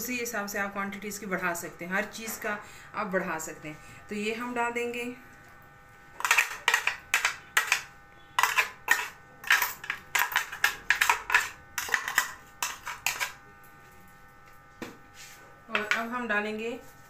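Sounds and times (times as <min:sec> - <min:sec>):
metal spoon scraping blender jar: 0:06.2 - 0:13.4.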